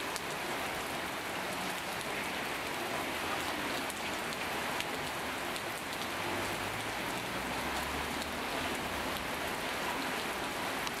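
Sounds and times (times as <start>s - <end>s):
heavy rain: 0.0s - 11.0s
rain drop splashes: 0.0s - 11.0s.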